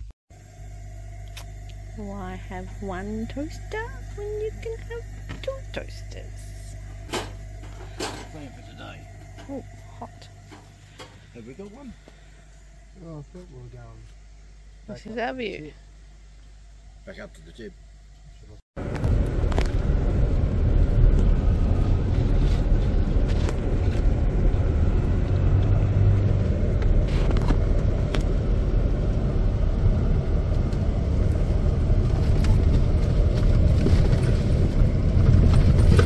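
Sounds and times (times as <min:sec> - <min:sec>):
vehicle road rumble: 0:18.8 - 0:36.0.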